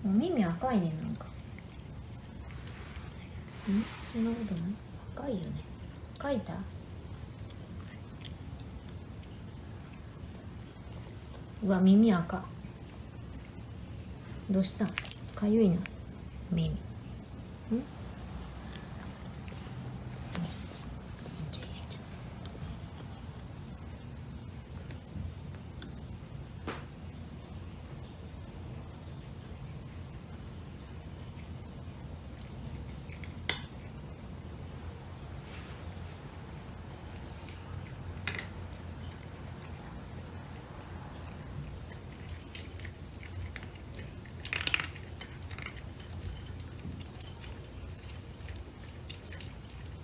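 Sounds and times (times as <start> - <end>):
cat crunching dry kibble: 41.7 - 50.0.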